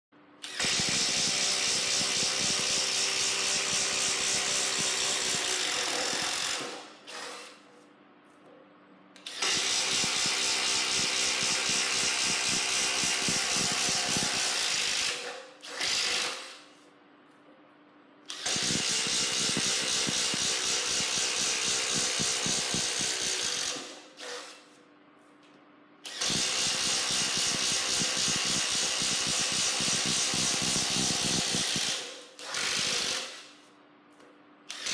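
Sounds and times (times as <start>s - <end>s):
impact driver boring through wood: 0.5s - 7.5s, 9.3s - 16.5s, 18.4s - 24.5s, 26.1s - 33.4s.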